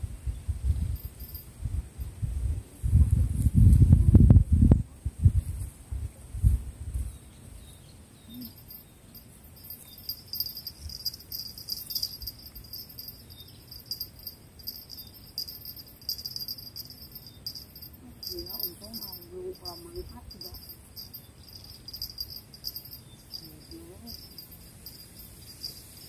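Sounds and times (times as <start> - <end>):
insects chirring: 8.3 - 26.0.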